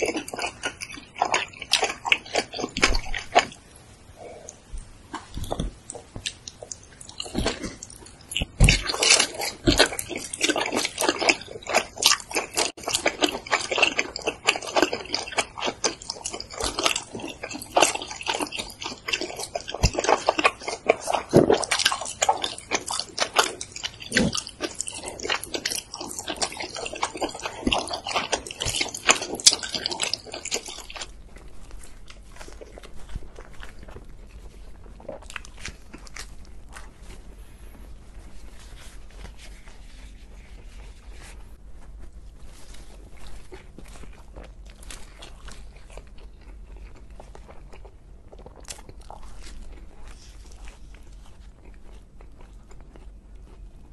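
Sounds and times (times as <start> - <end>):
wet mouth sounds: 0.0 - 31.2
chewing and biting pizza: 0.0 - 53.9.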